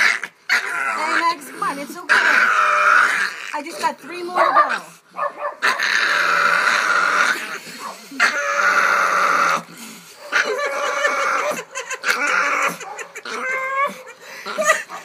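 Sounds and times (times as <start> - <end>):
puppy screaming shrilly: 0.0 - 7.4.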